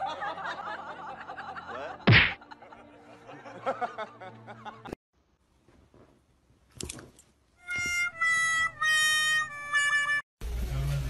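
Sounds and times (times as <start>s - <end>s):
loud slap-like smack: 2.1s - 2.4s.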